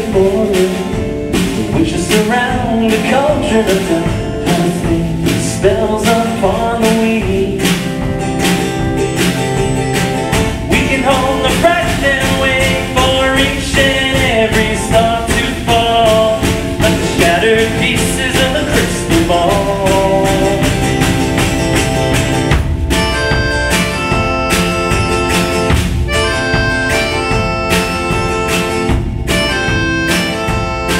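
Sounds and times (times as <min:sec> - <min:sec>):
drum kit beat: 0:00.0 - 0:30.9
strummed acoustic guitar: 0:00.0 - 0:30.9
wavering lead melody: 0:20.8 - 0:30.9.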